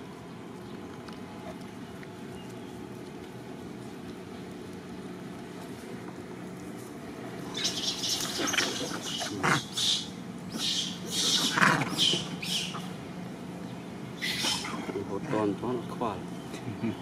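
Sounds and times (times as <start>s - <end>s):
high animal chirps and squeaks: 7.5s - 13.0s, 14.2s - 14.9s.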